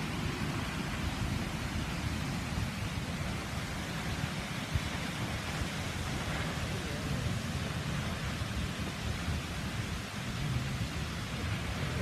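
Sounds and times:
waterfall rushing: 0.0 - 12.0
low rumble: 10.2 - 12.0.

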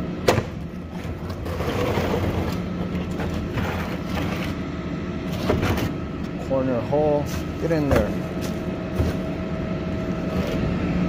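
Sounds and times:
trash cart scraping and rattling: 0.3 - 4.6, 5.2 - 6.0, 7.2 - 9.4.

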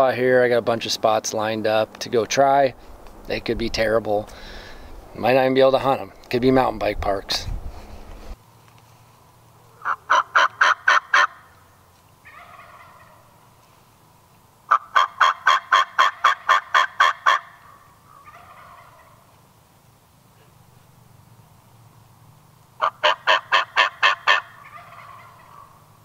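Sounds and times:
soft turkey calls: 8.8 - 13.9, 14.7 - 19.5, 22.8 - 26.0
turkey yelping: 9.7 - 11.5, 12.2 - 13.3, 14.7 - 19.3, 22.8 - 25.9.

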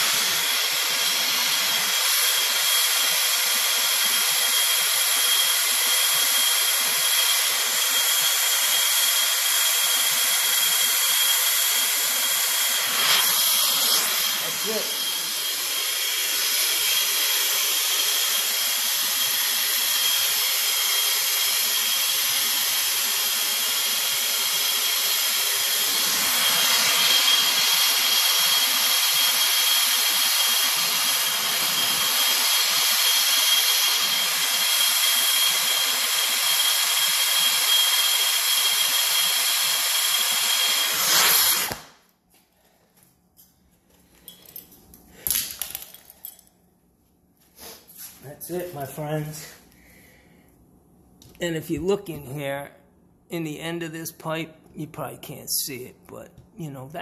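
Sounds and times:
torch flame hissing: 0.0 - 42.0.

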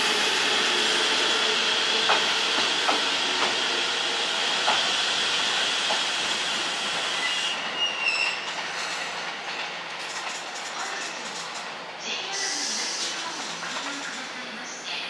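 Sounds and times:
train wheels clacking: 2.0 - 3.8, 4.5 - 5.0, 5.8 - 6.4, 8.2 - 11.8
high wheel squeal: 7.1 - 8.5.

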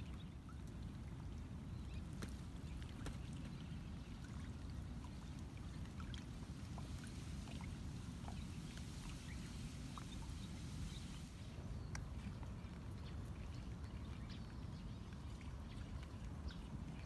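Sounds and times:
steady low outdoor noise: 0.0 - 17.0
water dripping from leaves: 1.9 - 14.2.

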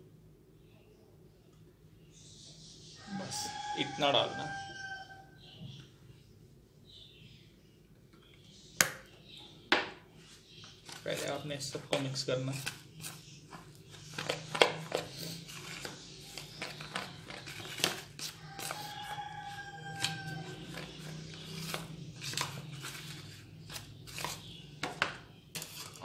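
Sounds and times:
fingers stirring dry food mix: 10.8 - 24.6, 25.5 - 26.0.

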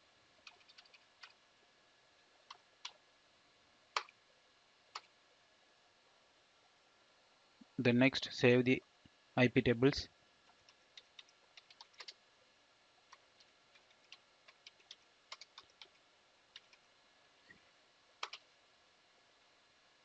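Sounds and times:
keyboard typing: 0.4 - 1.4, 10.5 - 12.2, 13.1 - 16.8, 18.2 - 18.4.

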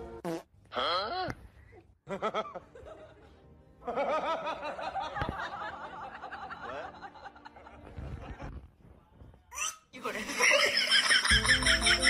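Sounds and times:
person laughing: 10.2 - 12.0.

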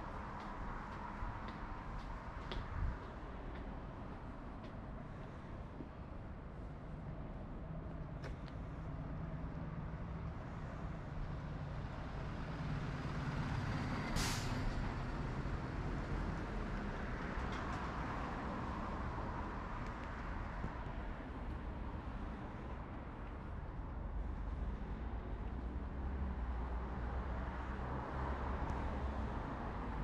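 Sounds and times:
heavy traffic rumble: 0.0 - 30.0
air brake hiss: 14.2 - 14.7.

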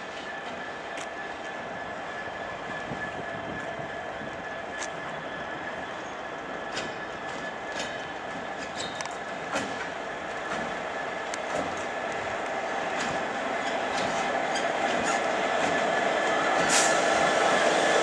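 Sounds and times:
locomotive engine drone: 0.0 - 18.0.

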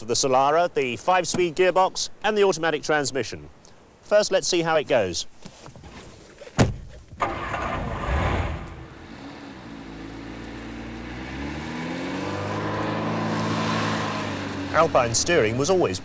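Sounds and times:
car engine starting and revving: 7.2 - 15.6.

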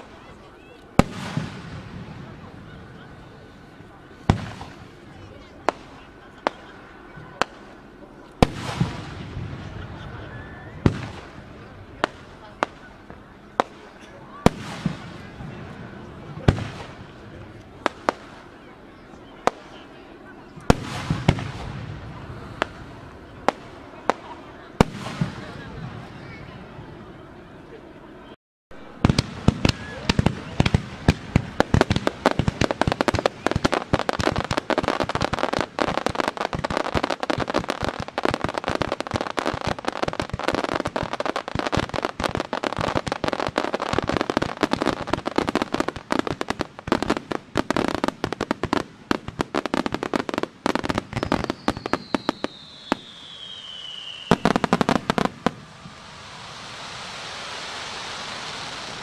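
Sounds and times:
fireworks bangs and bursting shells: 0.0 - 26.7, 28.8 - 59.0
falling firework whistle: 8.7 - 11.2, 29.0 - 30.7, 51.1 - 59.0
firework hiss: 29.0 - 59.0.

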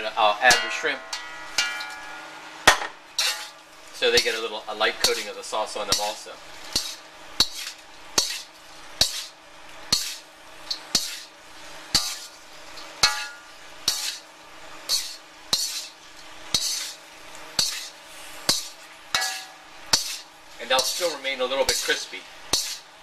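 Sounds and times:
metal spatula scraping a wok: 0.2 - 2.3, 3.1 - 23.0.

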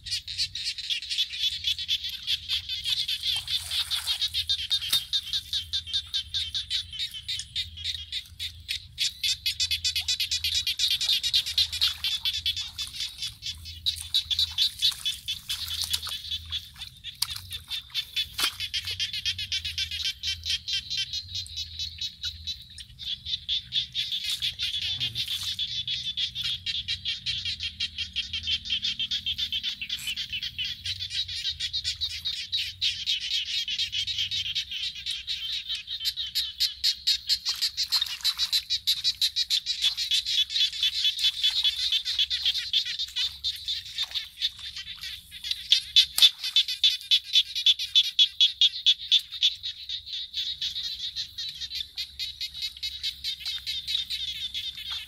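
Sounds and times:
chorus of frogs calling: 0.0 - 55.0.

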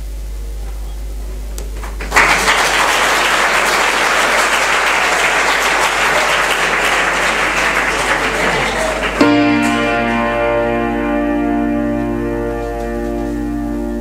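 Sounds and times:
audience applause: 1.8 - 10.2.

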